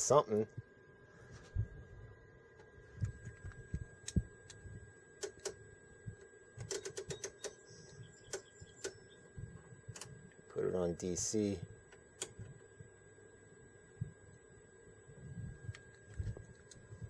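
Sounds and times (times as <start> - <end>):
faint high whine: 0.0 - 17.0
rotary switch clicks: 6.6 - 9.0.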